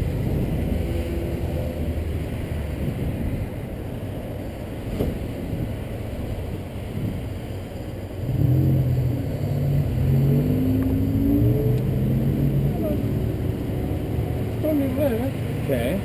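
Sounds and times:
muffled traffic rumble: 0.0 - 16.0.

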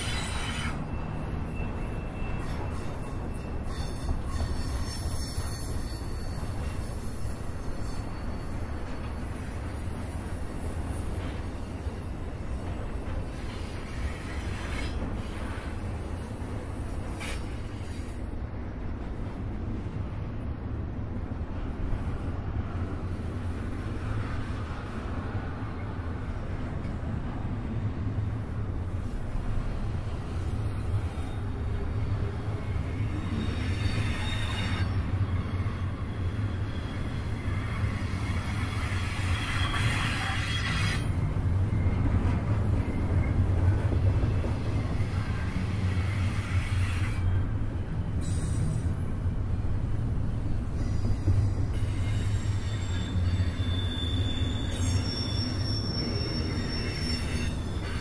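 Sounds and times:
high wheel squeals: 0.0 - 16.4, 29.8 - 43.4, 50.7 - 58.0
train wheels rumbling on rail: 0.0 - 58.0.

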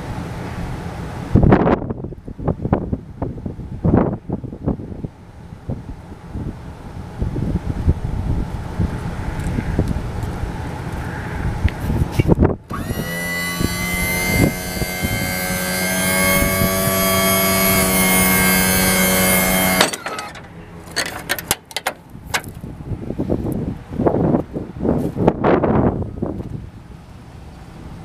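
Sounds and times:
wind noise on microphone: 0.1 - 20.3, 22.0 - 27.2
hydraulic pump motor whining: 12.7 - 21.8
knocks and clicks: 19.0 - 22.5.

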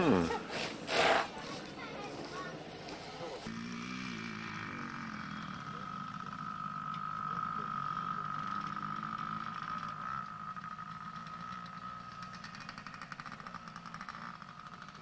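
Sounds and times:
minibike engine whining: 0.0 - 15.0
fast rattling pulse: 3.5 - 15.0.

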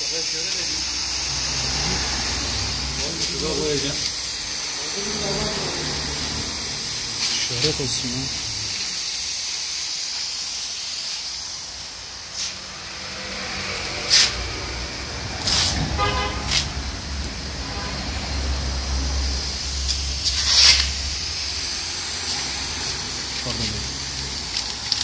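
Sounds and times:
road traffic rumbling: 0.0 - 25.0
steady hiss: 0.0 - 25.0
car horn toot: 15.8 - 16.8, 17.6 - 18.5
masking tape pulled off roll: 19.8 - 21.1.

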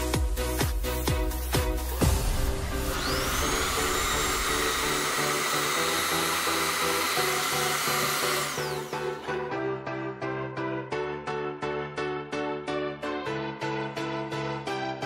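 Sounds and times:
background music: 0.0 - 15.0
drill press motor whine: 2.4 - 9.4.

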